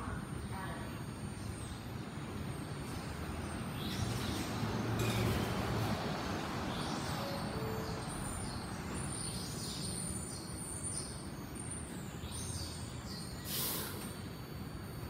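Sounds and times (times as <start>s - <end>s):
subway train humming: 0.0s - 15.0s
birds chirping: 6.4s - 15.0s
burst of hiss: 13.4s - 14.2s.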